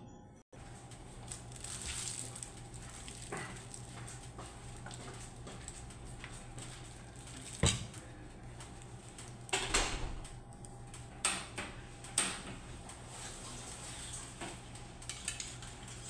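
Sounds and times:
kitchenware knocking and clattering: 0:07.6 - 0:08.0.

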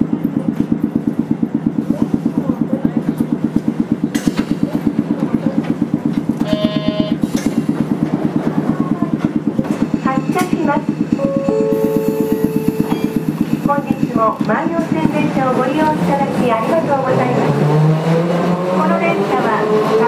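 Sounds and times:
air compressor pulsing: 0:00.0 - 0:20.0
short electronic tone: 0:06.4 - 0:07.3, 0:11.1 - 0:14.2.

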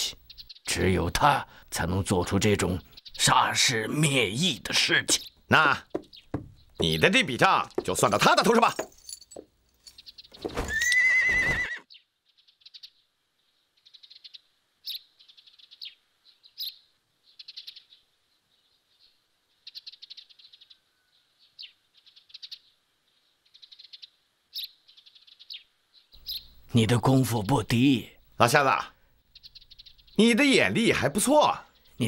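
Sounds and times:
small birds chirping: 0:00.0 - 0:32.0
horse whinnying: 0:10.6 - 0:11.8.

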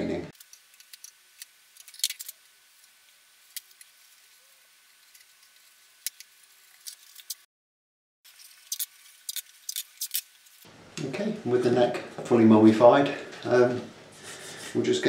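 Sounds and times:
masking tape crackling: 0:00.3 - 0:07.5, 0:08.3 - 0:12.4.

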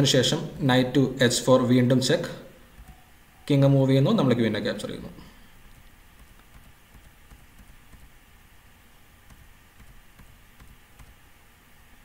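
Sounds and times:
low room hum: 0:00.0 - 0:12.0
computer clicks: 0:05.6 - 0:08.2, 0:09.3 - 0:11.2.

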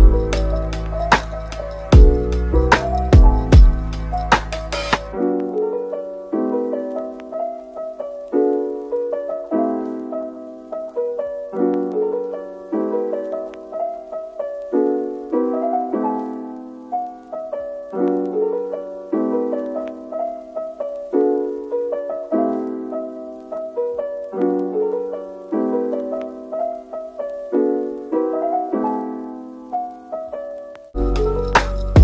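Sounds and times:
beat with sharp drum hits: 0:00.0 - 0:05.2, 0:31.1 - 0:32.0
soft piano tune: 0:00.0 - 0:32.0.

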